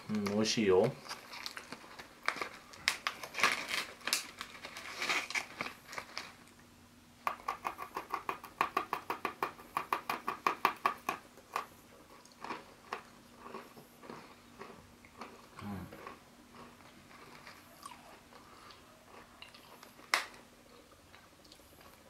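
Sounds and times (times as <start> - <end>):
foil snack bag crinkling: 0.3 - 6.6
pretzel stick crunching: 1.0 - 6.6.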